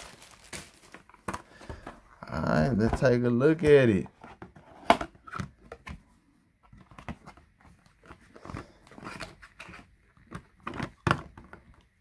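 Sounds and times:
plastic bottles clicking and scraping: 0:00.0 - 0:02.0, 0:06.7 - 0:12.0.

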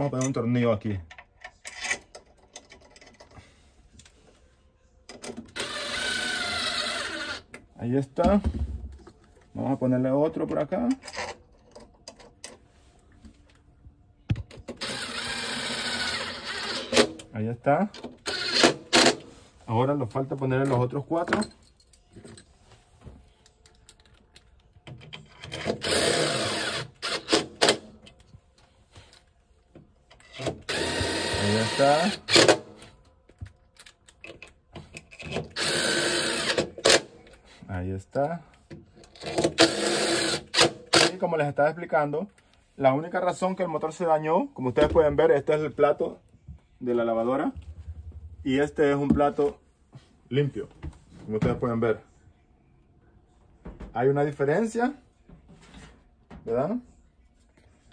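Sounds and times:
power drill running: 0:05.6 - 0:07.4, 0:14.8 - 0:17.1, 0:18.2 - 0:19.1, 0:25.8 - 0:27.8, 0:30.7 - 0:32.6, 0:35.6 - 0:36.9, 0:39.6 - 0:40.8.

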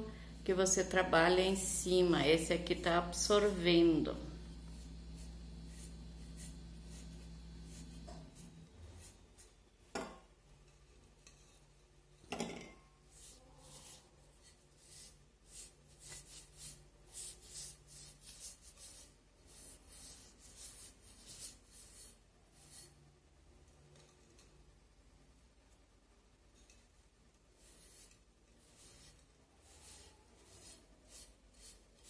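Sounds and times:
cloth rubbing ceramic vase: 0:03.2 - 0:09.6, 0:13.0 - 0:23.0, 0:27.6 - 0:32.0.

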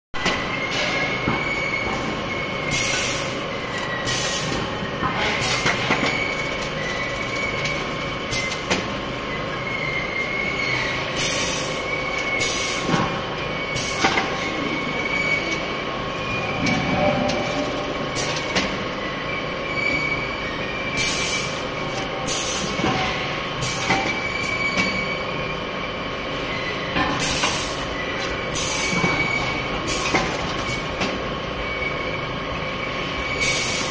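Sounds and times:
high squeal: 0:00.4 - 0:04.5, 0:09.3 - 0:12.9, 0:13.5 - 0:21.6, 0:24.1 - 0:25.7.

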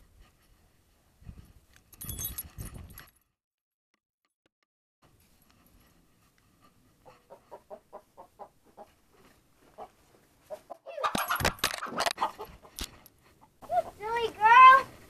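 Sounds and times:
hen clucking: 0:07.0 - 0:09.0, 0:09.6 - 0:14.0.

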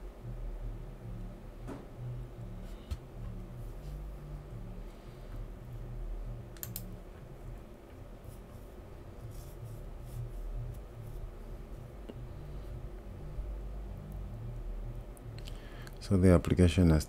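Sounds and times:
low steady hum: 0:00.0 - 0:17.0
computer mouse clicks: 0:06.5 - 0:06.9.

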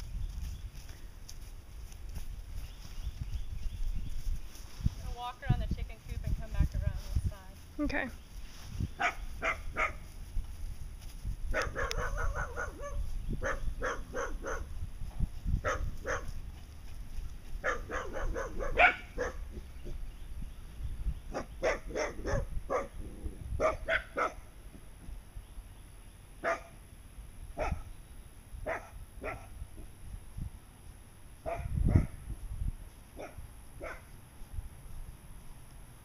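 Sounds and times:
dog barking: 0:09.0 - 0:10.0, 0:11.5 - 0:14.7, 0:15.6 - 0:16.4, 0:17.6 - 0:19.6, 0:21.3 - 0:23.0, 0:23.6 - 0:24.5, 0:26.4 - 0:26.7, 0:27.6 - 0:27.9, 0:28.6 - 0:29.6, 0:31.4 - 0:32.2, 0:33.2 - 0:34.1.

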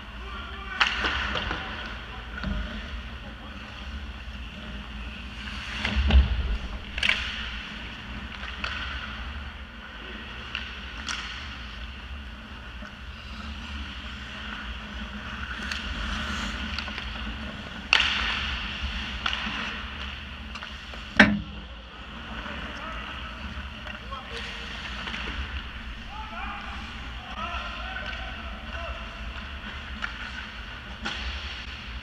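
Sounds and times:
hockey sticks and puck cracking: 0:00.8 - 0:01.9, 0:07.0 - 0:09.5, 0:10.4 - 0:11.9, 0:15.3 - 0:21.6, 0:23.9 - 0:31.8
heavy thump: 0:05.9 - 0:07.2, 0:21.2 - 0:21.6
skates scraping on ice: 0:12.4 - 0:21.1.

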